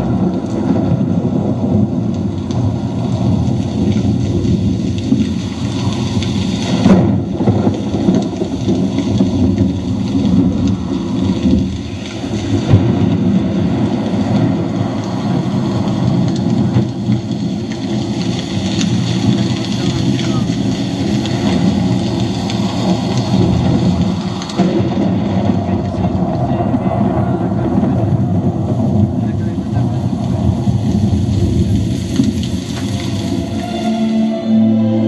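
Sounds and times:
thunder claps: 0:00.0 - 0:34.6
rain: 0:00.0 - 0:35.0
rolling thunder: 0:00.0 - 0:35.0.

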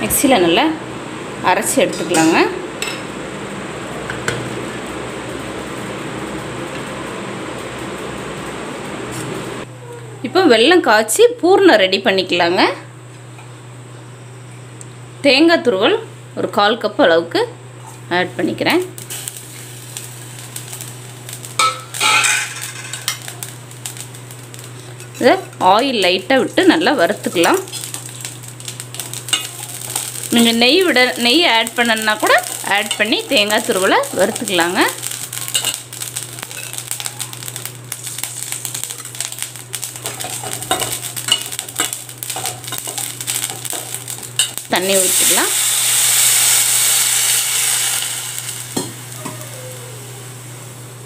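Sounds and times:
steady low hum: 0:00.0 - 0:51.0
metal bowl and pan clattering: 0:21.6 - 0:23.3, 0:40.0 - 0:44.6.

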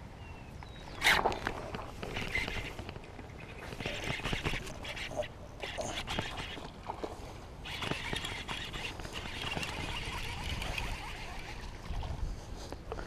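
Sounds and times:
wind rumbling on microphone: 0:00.0 - 0:13.0
fishing reel cranking: 0:02.0 - 0:02.8, 0:03.6 - 0:06.7, 0:07.6 - 0:12.1.

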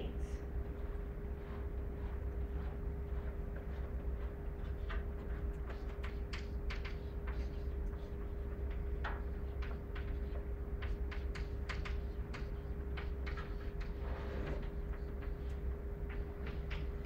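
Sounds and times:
steady hum: 0:00.0 - 0:17.0.

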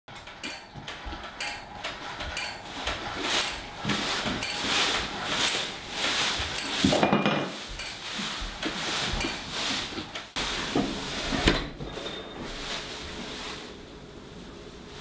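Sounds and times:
footsteps on wooden floor: 0:02.2 - 0:11.6.

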